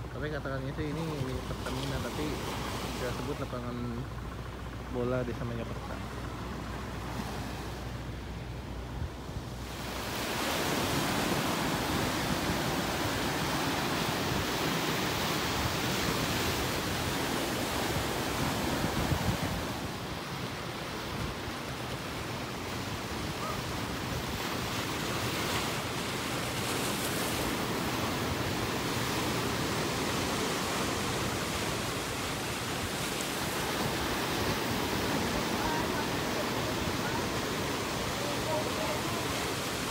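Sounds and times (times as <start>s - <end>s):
surf breaking on rocky shore: 9.6s - 39.9s.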